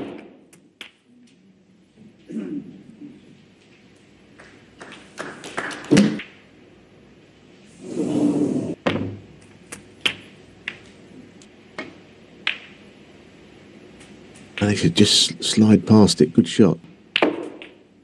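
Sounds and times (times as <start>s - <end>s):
snooker balls clicking: 0.0s - 1.4s, 3.6s - 6.4s, 8.9s - 12.9s, 14.0s - 14.8s, 16.8s - 18.0s.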